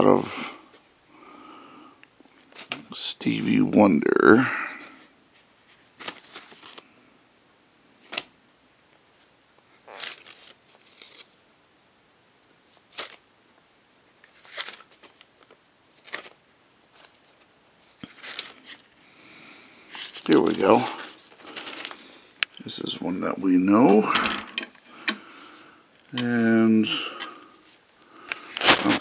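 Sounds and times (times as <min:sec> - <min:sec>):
paper sleeves rustling: 0:04.7 - 0:06.9, 0:09.1 - 0:11.4, 0:12.7 - 0:13.3, 0:14.2 - 0:19.0, 0:19.8 - 0:29.0.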